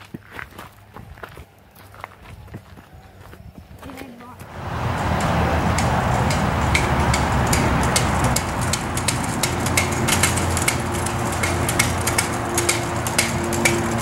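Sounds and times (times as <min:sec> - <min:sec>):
scooter wheels rolling on concrete: 0:04.0 - 0:14.0
wind rumble: 0:04.4 - 0:14.0.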